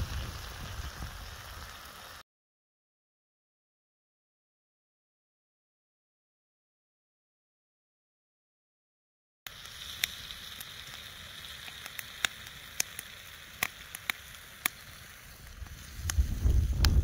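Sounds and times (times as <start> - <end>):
wind rumble on microphone: 0.0 - 1.8, 15.6 - 17.0
campfire crackling: 0.0 - 2.2, 9.5 - 17.0.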